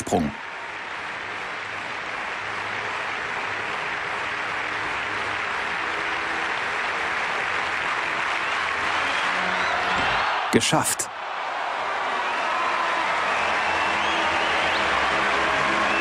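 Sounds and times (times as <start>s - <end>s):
crowd applauding: 0.0s - 16.0s.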